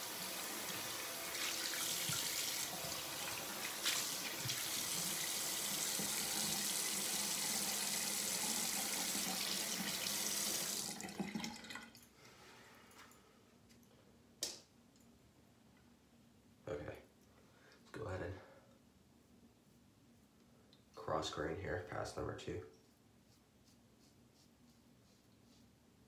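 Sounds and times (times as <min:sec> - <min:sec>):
tap water running into sink: 0:00.0 - 0:12.0.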